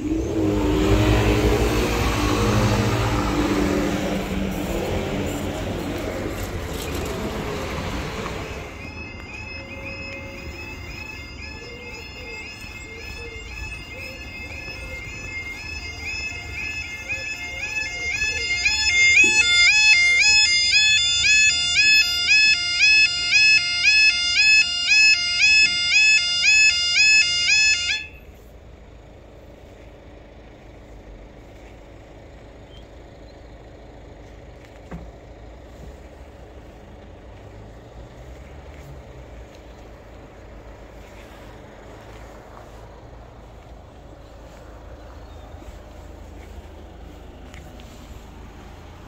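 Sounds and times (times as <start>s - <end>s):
level crossing alarms warbling: 0.0s - 28.2s.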